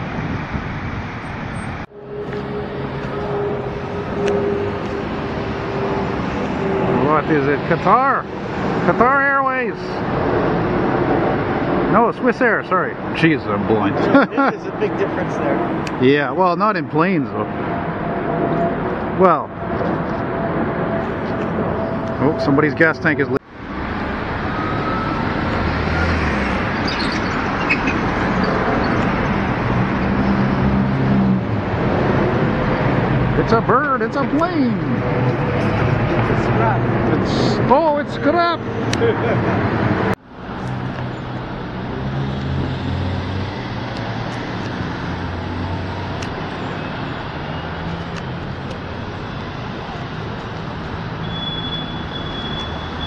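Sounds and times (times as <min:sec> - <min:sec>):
bus engine running: 0:00.0 - 0:09.2
jet airliner engines roaring: 0:00.0 - 0:53.0
street traffic: 0:00.0 - 0:53.0.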